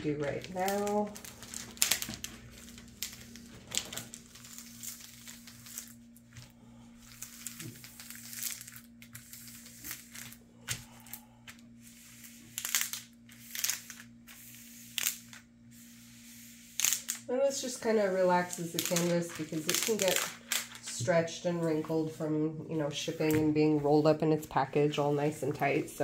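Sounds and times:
plastic sheet peeling and crinkling: 0.0 - 11.2, 11.9 - 15.5, 16.1 - 21.9.

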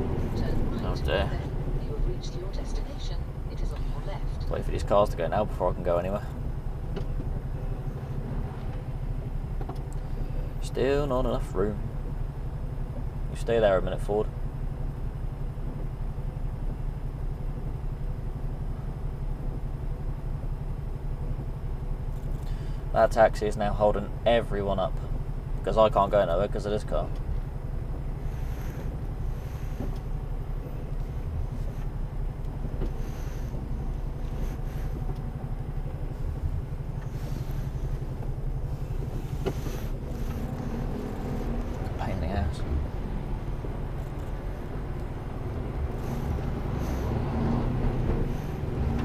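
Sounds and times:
diesel truck engine idling: 0.0 - 49.0.

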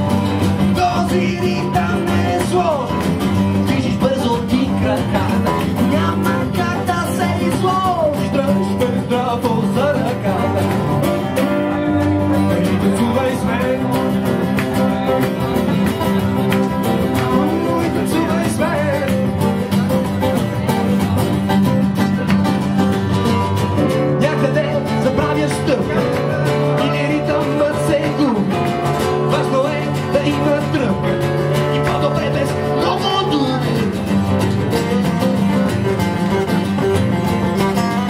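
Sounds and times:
man singing into a microphone: 0.0 - 15.2, 17.1 - 19.5, 23.9 - 34.2
acoustic guitars strumming: 0.0 - 38.0.

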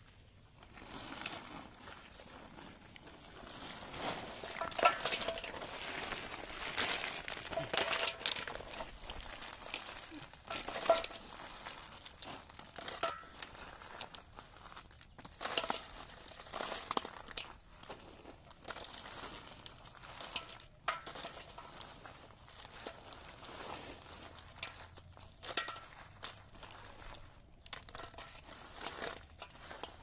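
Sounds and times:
plastic sacks crinkling: 0.0 - 30.0
clinks against metal basin: 4.5 - 5.6.

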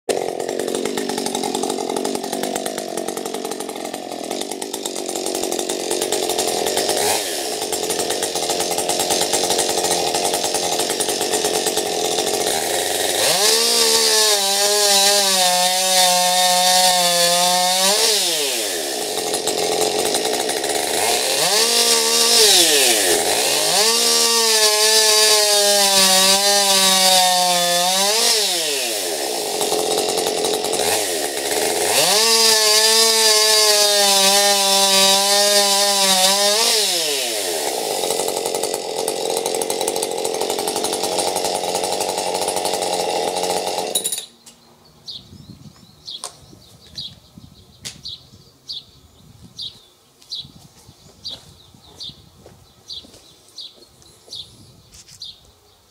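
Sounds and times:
chainsaw idling and revving: 0.0 - 44.4.

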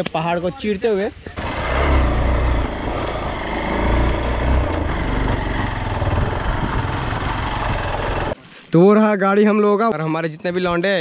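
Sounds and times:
motorcycle engine rumbling: 1.3 - 8.4
rattling on rough track: 1.4 - 8.4.

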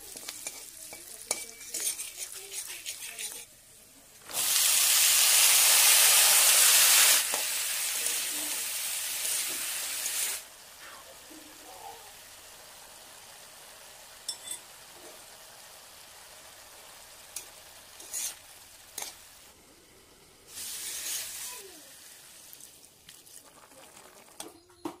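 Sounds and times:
spatula clinking and scraping pan: 0.0 - 3.5, 14.2 - 14.7, 17.3 - 19.2
squash sizzling in wok: 0.0 - 25.0.

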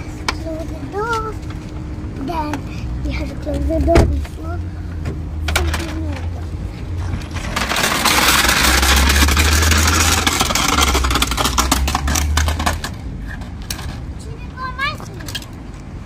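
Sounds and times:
plastic wheels rattling on asphalt: 5.4 - 15.8.

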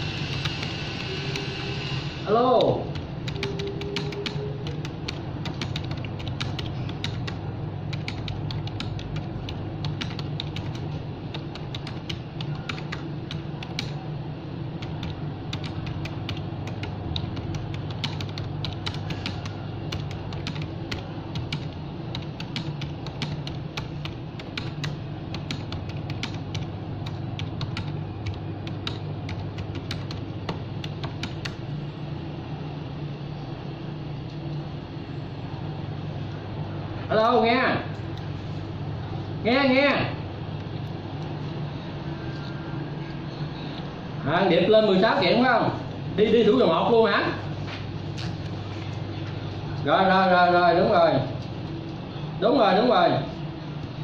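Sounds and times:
steady low hum: 0.0 - 54.0
rapid light clicks like typing: 2.6 - 14.0, 14.8 - 31.6.

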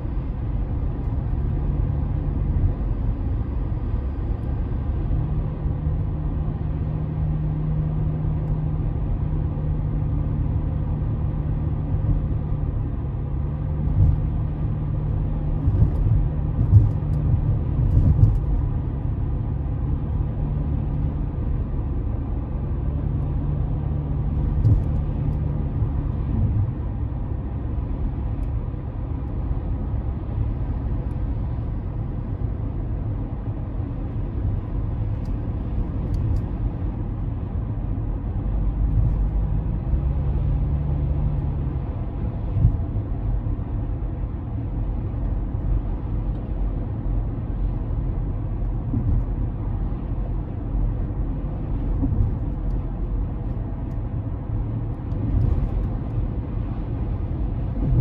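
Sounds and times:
car engine and tyre rumble: 0.0 - 58.0
small bumps and knocks: 24.5 - 25.4.

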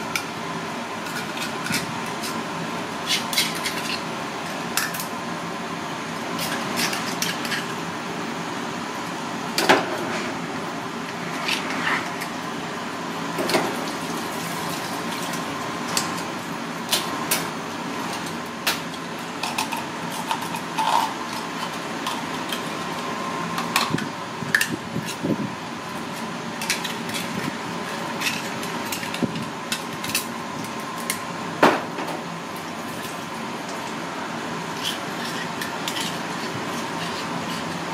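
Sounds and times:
knife scraping clam shell: 34.8 - 37.8.

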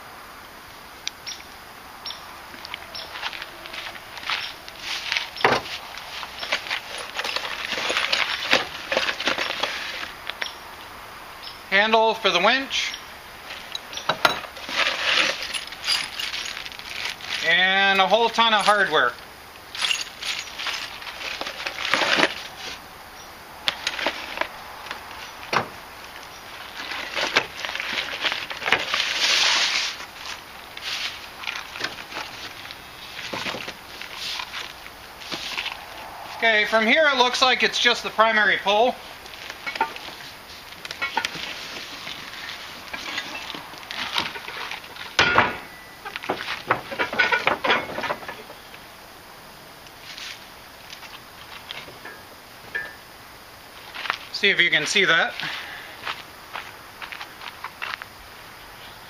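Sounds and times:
cardboard rustling: 3.1 - 10.2, 14.4 - 17.6, 20.2 - 22.8, 23.7 - 36.0
packing wrap crinkling and tearing: 14.6 - 17.6
heavy thud on wooden truck bed: 25.5 - 25.8, 45.2 - 45.7.

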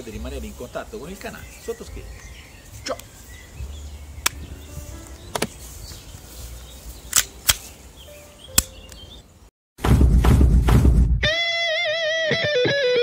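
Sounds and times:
wind rumble on microphone: 3.4 - 7.0
pistol clicks and snaps: 7.1 - 7.7, 8.6 - 9.0.

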